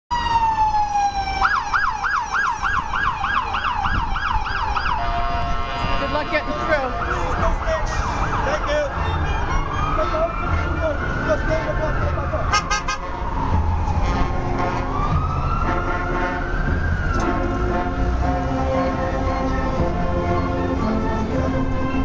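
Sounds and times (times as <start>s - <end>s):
emergency vehicle siren: 0.1s - 22.0s.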